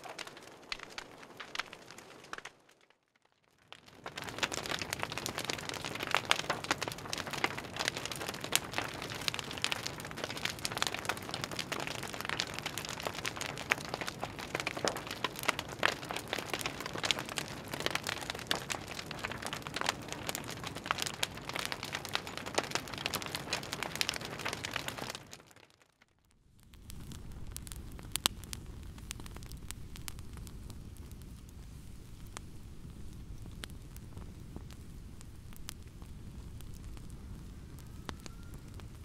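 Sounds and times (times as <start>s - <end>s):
campfire crackling: 0.0s - 39.0s
rush of flame: 26.6s - 39.0s.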